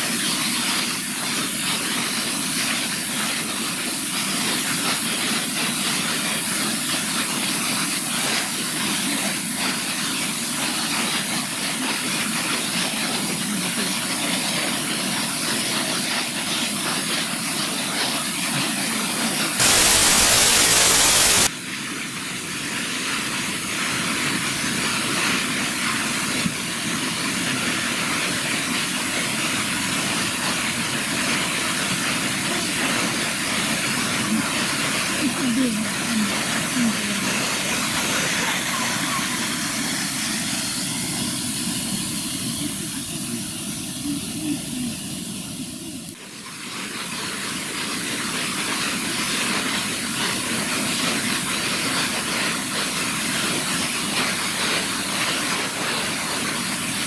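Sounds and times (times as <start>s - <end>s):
waterfall rushing: 19.1s - 21.5s, 30.0s - 44.8s.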